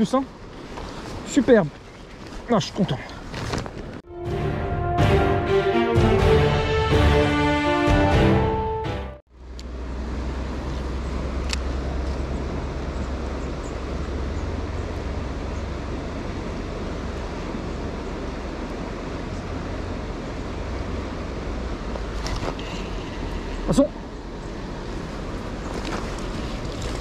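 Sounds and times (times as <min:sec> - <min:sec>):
river flowing: 0:09.7 - 0:27.0.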